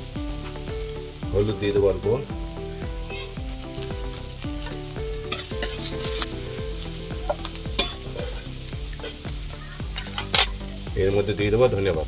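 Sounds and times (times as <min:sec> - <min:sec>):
onion sizzling in hot oil: 0:00.0 - 0:12.0
metal spatula scraping pan: 0:05.3 - 0:06.5, 0:07.2 - 0:09.2.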